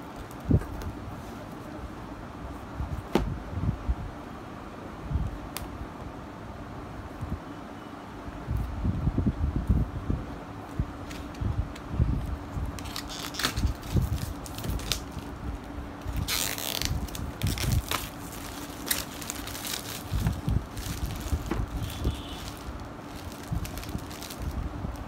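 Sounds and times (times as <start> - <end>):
plastic wrap being slit: 12.8 - 15.3, 16.0 - 25.0
plastic wrap crinkling: 12.8 - 15.3, 16.0 - 25.0.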